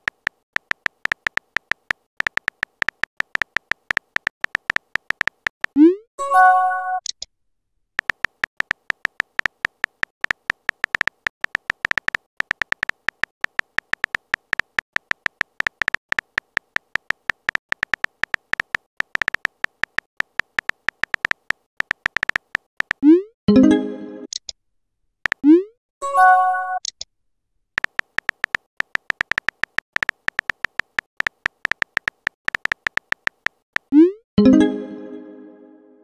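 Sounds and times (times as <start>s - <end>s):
keyboard tapping clicks: 0.0s - 5.8s, 8.0s - 23.0s, 27.8s - 34.0s.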